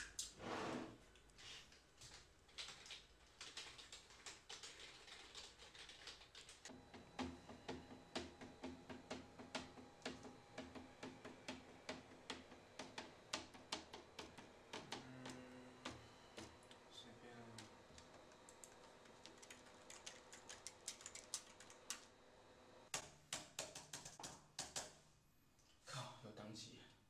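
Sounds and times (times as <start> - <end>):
typing on computer keyboard: 2.1 - 6.7, 17.6 - 22.1, 23.0 - 24.9.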